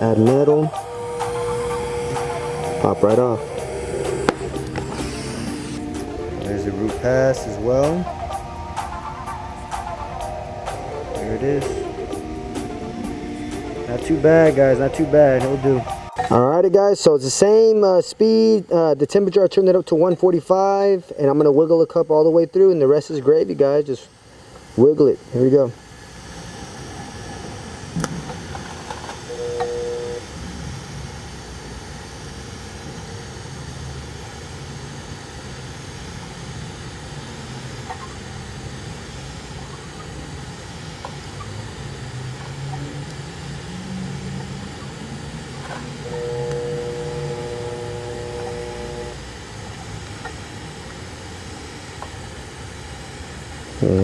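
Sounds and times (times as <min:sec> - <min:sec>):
higher steady tone: 0:00.0 - 0:18.9, 0:29.2 - 0:30.4, 0:39.0 - 0:49.9
welding arc hissing: 0:00.0 - 0:54.0.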